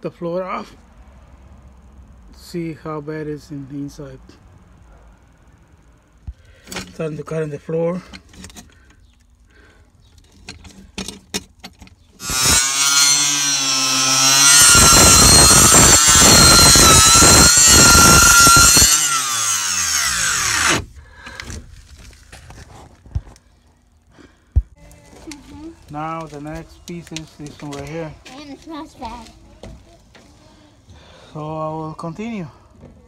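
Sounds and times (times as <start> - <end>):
circular saw cutting wood: 12.2 - 20.8
circular saw whining: 12.2 - 20.8.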